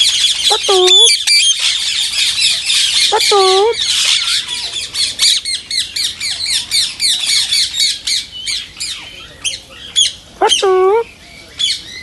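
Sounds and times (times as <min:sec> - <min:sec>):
parrot squawking and chirping: 0:00.0 - 0:12.0.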